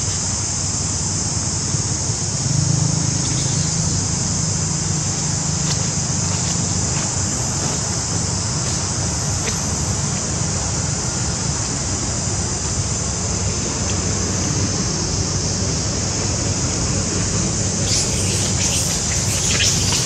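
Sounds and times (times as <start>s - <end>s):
high-pitched hiss: 15.4s - 20.0s.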